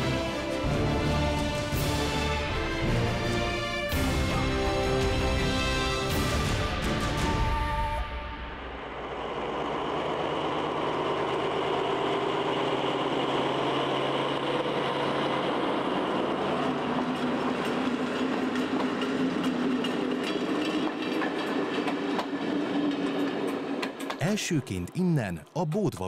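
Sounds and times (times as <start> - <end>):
diesel locomotive engine: 0.0 - 26.0
train wheels clicking over rail joints: 17.2 - 24.2.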